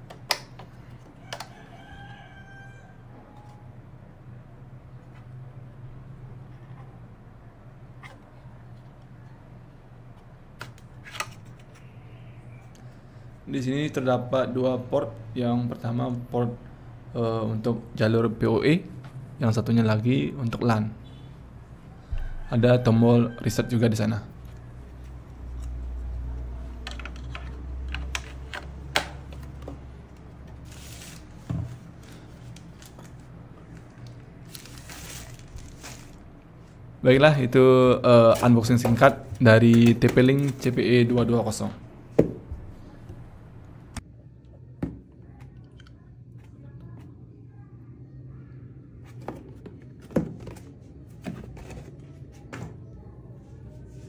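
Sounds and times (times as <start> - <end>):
foam sheet rustling: 34.5 - 36.2.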